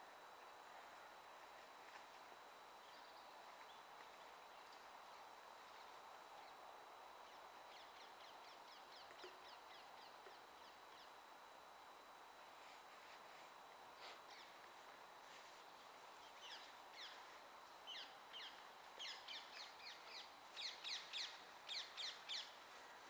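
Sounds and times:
faint outdoor hiss: 0:00.0 - 0:23.0.

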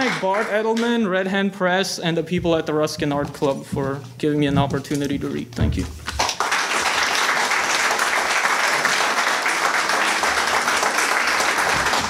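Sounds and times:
audience applauding: 0:00.0 - 0:00.8, 0:06.0 - 0:12.0.

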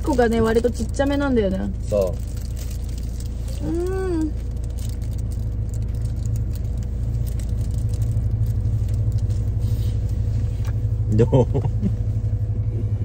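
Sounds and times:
van engine idling: 0:00.0 - 0:13.0
person humming while chewing: 0:03.5 - 0:04.4.

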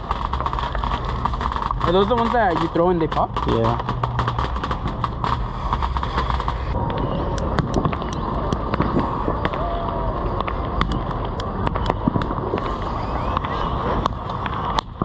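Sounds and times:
firecrackers popping: 0:00.0 - 0:15.0
low background rumble: 0:00.0 - 0:15.0.

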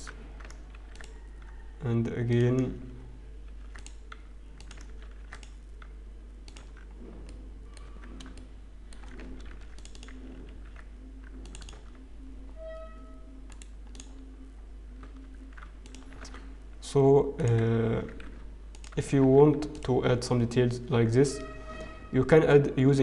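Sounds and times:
keyboard keys and mouse clicking: 0:00.0 - 0:01.7, 0:03.4 - 0:12.1, 0:13.4 - 0:16.6, 0:17.4 - 0:20.2
short higher tone: 0:21.3 - 0:22.2.

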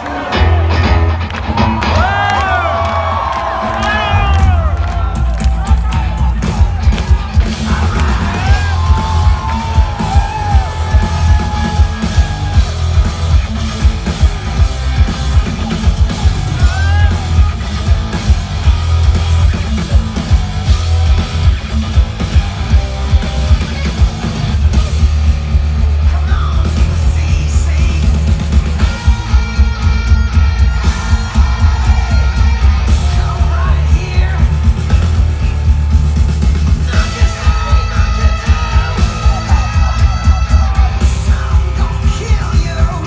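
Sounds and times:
rock band playing loud: 0:00.0 - 0:43.0
shouted vocals: 0:01.6 - 0:15.4, 0:16.0 - 0:19.6, 0:28.8 - 0:34.7, 0:36.9 - 0:43.0.

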